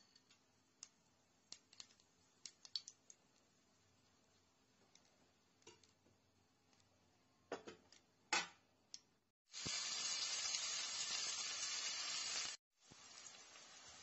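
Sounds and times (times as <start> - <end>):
seeds popping in hot oil: 0.0 - 6.2, 9.0 - 14.0
onions sizzling in oil: 9.5 - 14.0.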